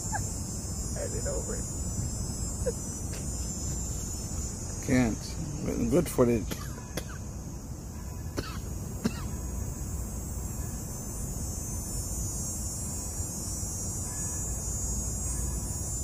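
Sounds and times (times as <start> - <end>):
high-pitched insect chorus: 0.0 - 16.0
person coughing: 8.4 - 9.3.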